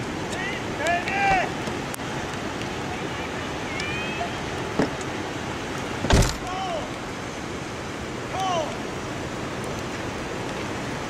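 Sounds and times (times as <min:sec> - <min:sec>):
river rushing: 0:00.0 - 0:11.0
sharp thump: 0:06.0 - 0:06.4.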